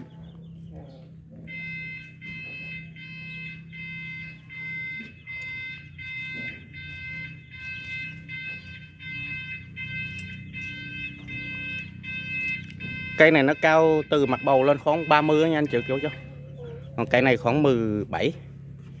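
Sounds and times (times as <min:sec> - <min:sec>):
high repeating beeps: 0:01.5 - 0:16.3.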